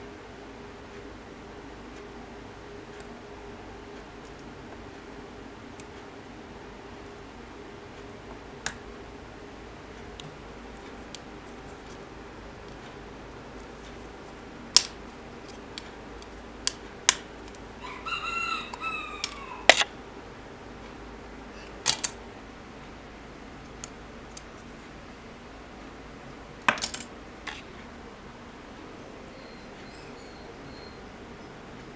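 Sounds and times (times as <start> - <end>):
rooster crowing: 17.8 - 19.9.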